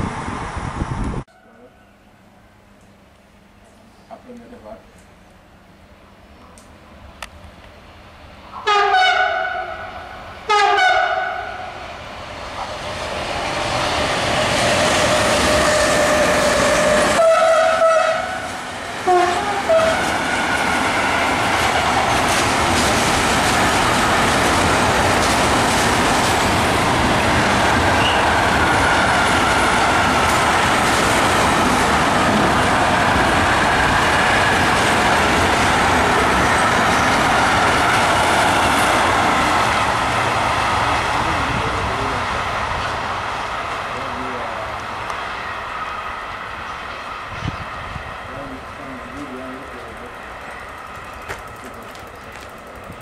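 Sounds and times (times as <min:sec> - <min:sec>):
train wheel and rail noise: 0:00.0 - 0:53.0
locomotive horn blasts: 0:08.6 - 0:11.7, 0:15.0 - 0:20.2.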